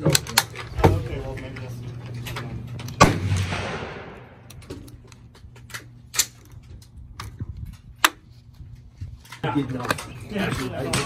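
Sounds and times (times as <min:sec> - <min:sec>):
rifle shot with echo: 0:03.0 - 0:04.4.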